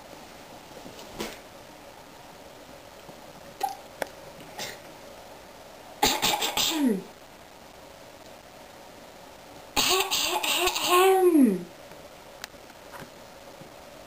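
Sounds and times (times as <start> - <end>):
woman coughing: 6.0 - 7.1, 9.8 - 11.2.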